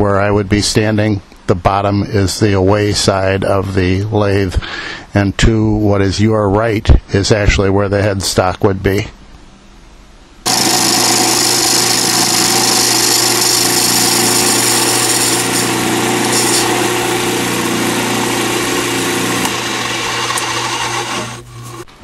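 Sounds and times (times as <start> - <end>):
chisel cutting hiss: 10.5 - 21.8
lathe motor hum: 10.5 - 21.9.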